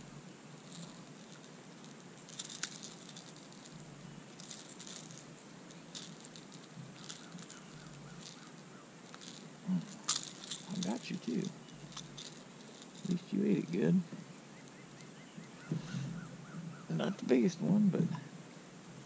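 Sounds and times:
light clicks and rattles: 0.6s - 15.1s.

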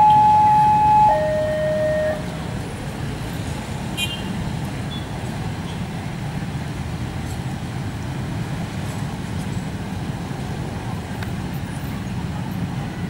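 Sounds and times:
brief high beep: 0.0s - 2.2s
level crossing alarm two-tone signal: 0.0s - 2.4s
low rumble of train and traffic: 0.0s - 13.0s.

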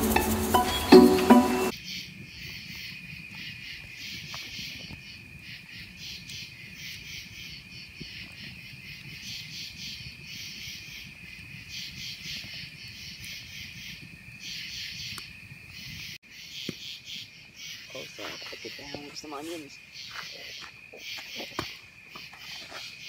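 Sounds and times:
fire crackles: 0.0s - 23.0s
night insects chirping: 0.0s - 23.0s
campfire burning: 1.6s - 16.1s.

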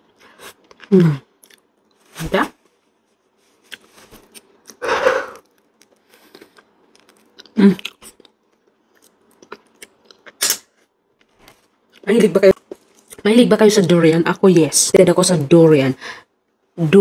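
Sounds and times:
person chewing with lip smacks: 0.4s - 1.7s, 5.4s - 10.4s.

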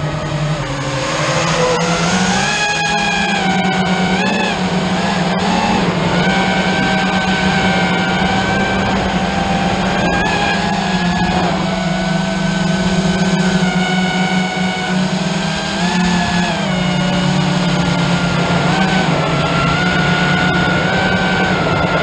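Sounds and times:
drone propellers whining: 0.0s - 22.0s.

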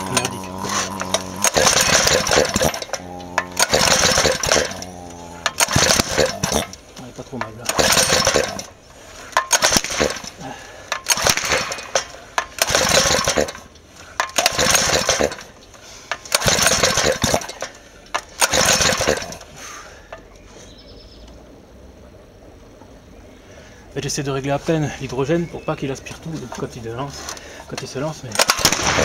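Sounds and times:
small engine pull-start cranking: 0.0s - 19.6s, 26.5s - 29.0s.

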